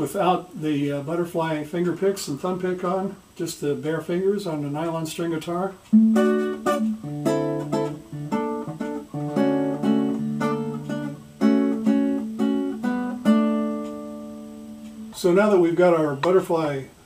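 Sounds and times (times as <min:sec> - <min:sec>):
nylon-string guitar fingerpicked: 0:04.7 - 0:16.8.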